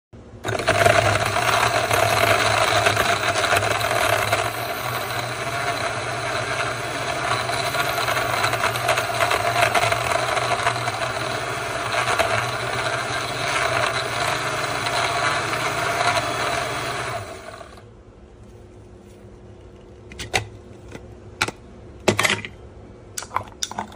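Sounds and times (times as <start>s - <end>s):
blender motor running: 0.4s - 17.8s.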